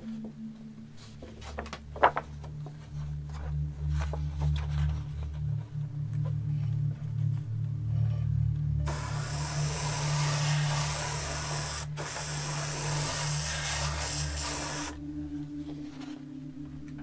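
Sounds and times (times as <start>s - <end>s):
airbrush spraying hiss: 8.9s - 15.0s.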